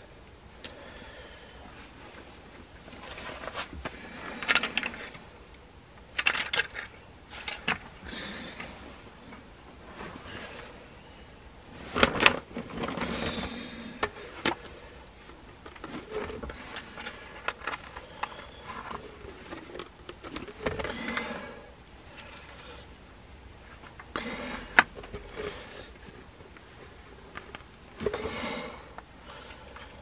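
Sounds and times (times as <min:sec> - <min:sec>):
scraping and rustling on gravel: 0:02.8 - 0:05.2
snap traps clicking and knocking: 0:04.4 - 0:07.9.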